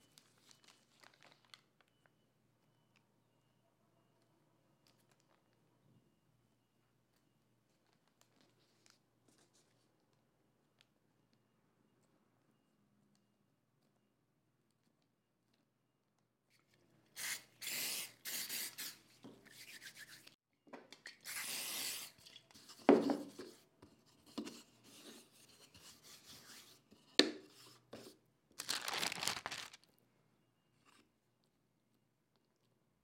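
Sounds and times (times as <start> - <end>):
hands rubbing and rustling paper: 28.6 - 29.9.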